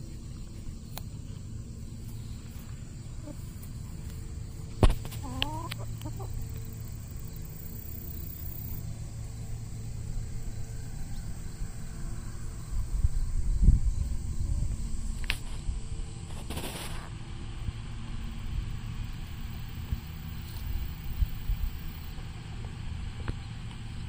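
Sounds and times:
low steady rumble: 0.0 - 24.0
chicken call: 5.1 - 6.5.

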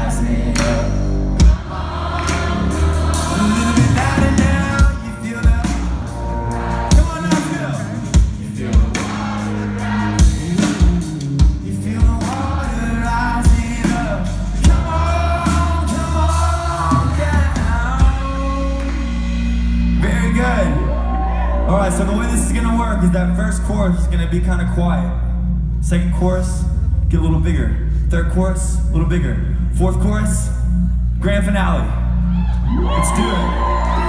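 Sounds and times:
band playing with singing: 0.0 - 20.8.

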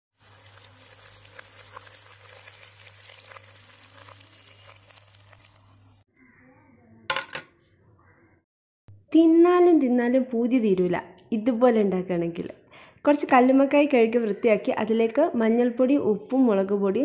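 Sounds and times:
mussels sizzling in hot oil: 0.1 - 6.0.

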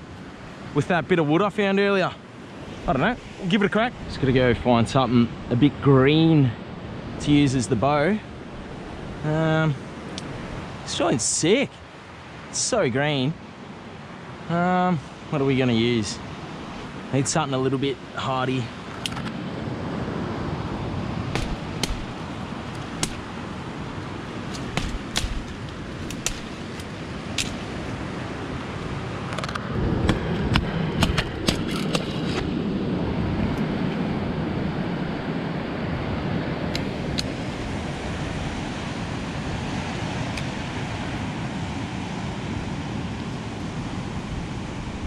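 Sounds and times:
wind: 0.0 - 45.0
branches cracking and snapping: 21.3 - 27.8.

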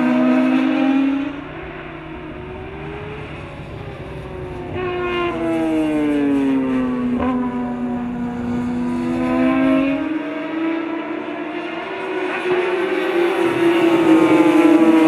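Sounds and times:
motorcycle engine passing: 0.0 - 11.1.

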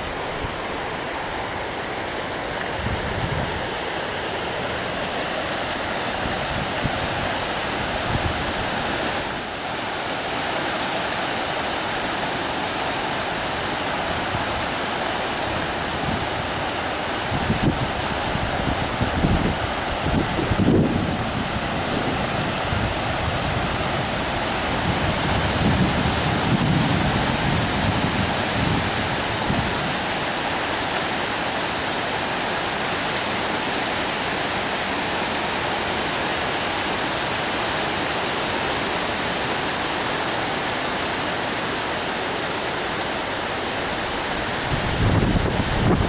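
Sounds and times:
flooded creek rushing: 0.0 - 46.0
wind buffeting microphone: 2.7 - 3.8, 15.6 - 30.1, 44.2 - 46.0.

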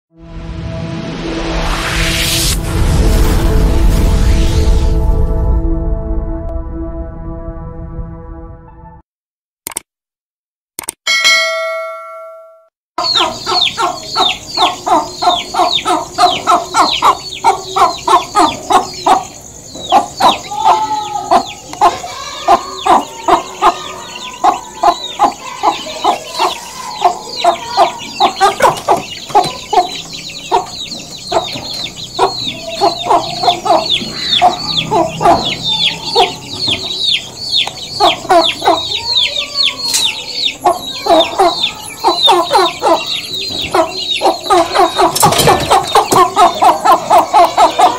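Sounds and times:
hen clucking: 13.0 - 47.9.

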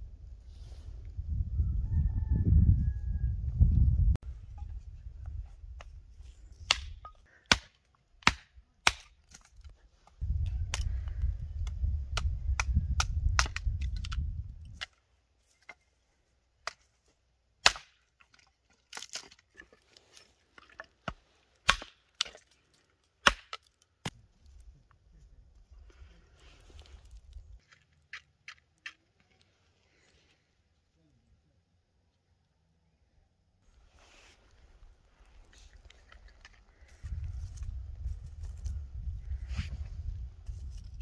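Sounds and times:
hatchet chopping wood: 6.6 - 9.5, 17.6 - 19.4, 21.0 - 22.4, 23.2 - 23.7.

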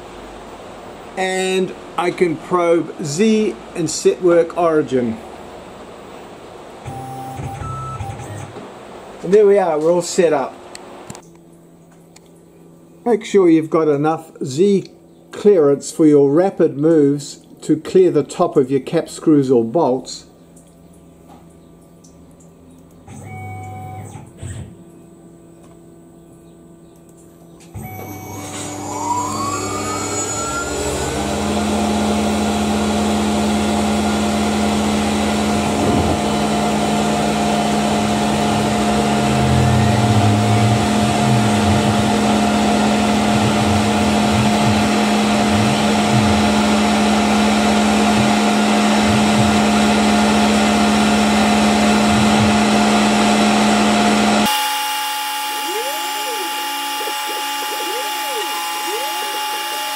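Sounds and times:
milling machine cutting metal: 54.5 - 59.9
spindle winding up: 54.5 - 59.9.

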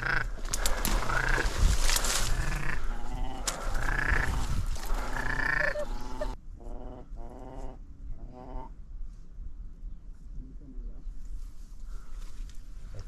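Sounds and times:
duck croaking growls: 0.0 - 1.5, 2.2 - 8.7.

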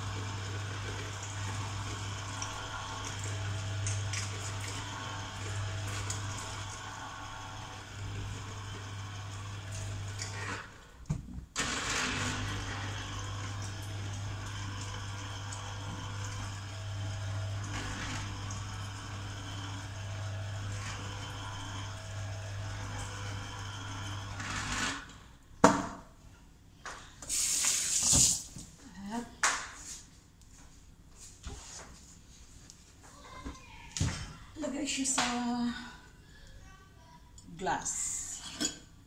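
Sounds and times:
electric juicer motor humming: 0.0 - 25.4.

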